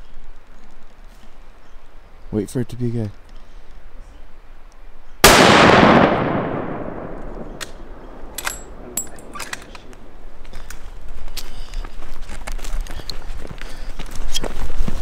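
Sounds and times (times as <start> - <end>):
rifle shot echoing: 5.2 - 10.2
rifle metallic clicks: 5.3 - 10.1
footsteps on dirt road: 9.4 - 15.0.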